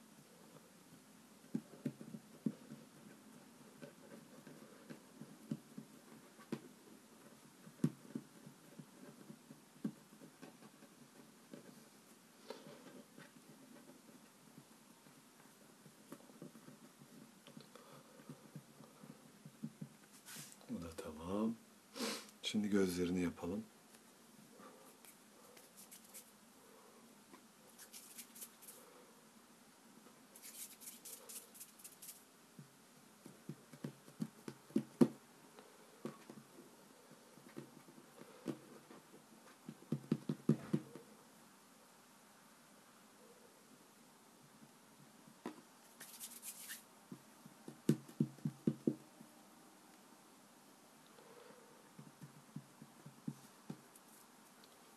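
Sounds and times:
fingers working play dough on table: 0.2 - 20.6, 30.4 - 35.2, 36.0 - 41.1.

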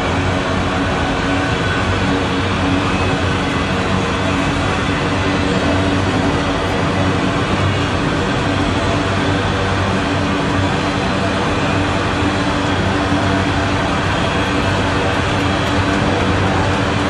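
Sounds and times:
steel train wheels on rails: 13.1 - 17.0.

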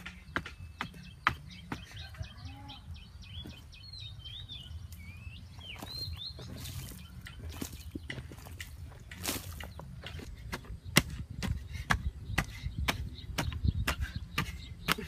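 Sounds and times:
digging stick striking earth: 0.0 - 2.0, 5.8 - 15.0
small birds chirping: 0.0 - 15.0.

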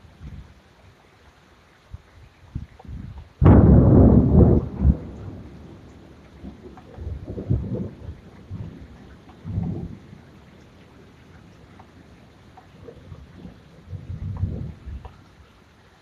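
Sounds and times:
steady rain: 0.0 - 16.0
thunder crack and rumbles: 2.9 - 10.3, 13.0 - 15.1.

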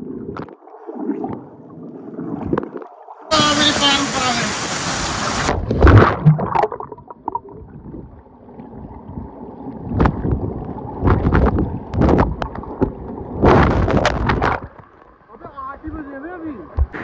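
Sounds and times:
underwater gurgles and swishes: 0.0 - 3.9, 4.6 - 17.0
microphone splashing into water: 2.2 - 8.1, 9.8 - 14.8
rushing hiss: 3.3 - 5.5
swimmer splashing: 3.3 - 6.7.

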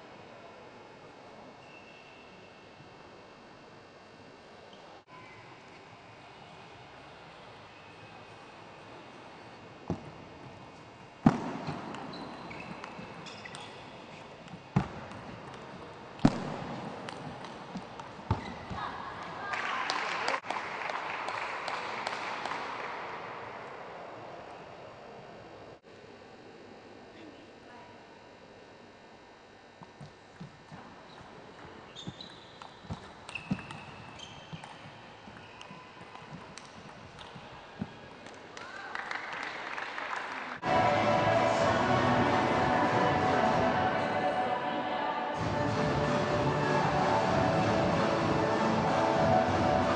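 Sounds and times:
shoes squeaking on floor: 11.7 - 14.9, 18.3 - 18.9, 30.4 - 38.0.

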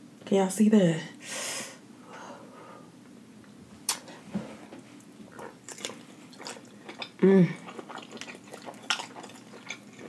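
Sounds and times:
wet mouth clicks and smacks: 3.9 - 4.1.

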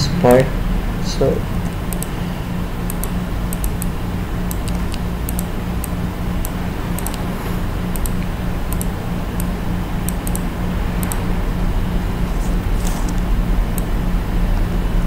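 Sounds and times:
low hum and hiss: 0.0 - 15.0
computer mouse clicking: 1.6 - 2.2, 2.8 - 7.3, 7.9 - 11.3, 12.4 - 13.9.

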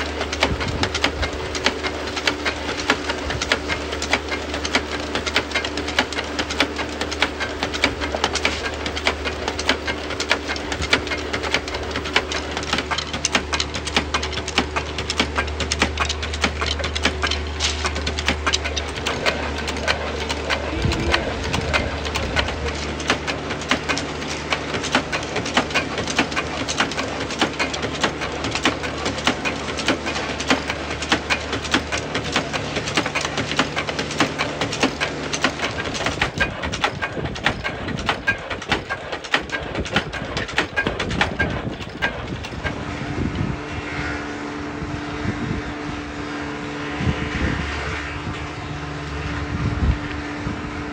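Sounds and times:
electric motor humming: 0.0 - 36.6
wooden strips clattering: 0.0 - 42.8.

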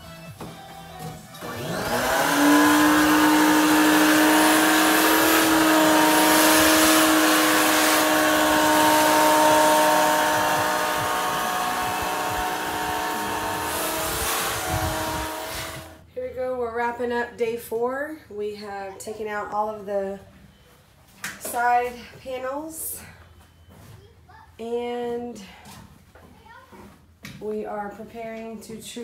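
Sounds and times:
shop vacuum motor whining: 1.3 - 16.1
rush of air: 11.9 - 16.0.

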